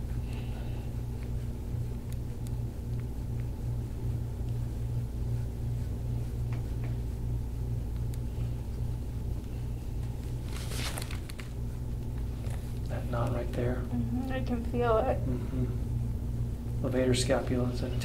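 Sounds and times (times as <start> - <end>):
pulsing low hum: 0.0 - 18.0
brief rustling: 10.3 - 12.6.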